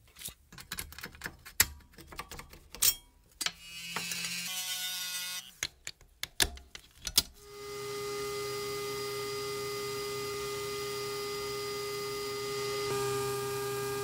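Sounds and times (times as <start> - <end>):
sharp clicks and knocks: 5.6 - 7.4.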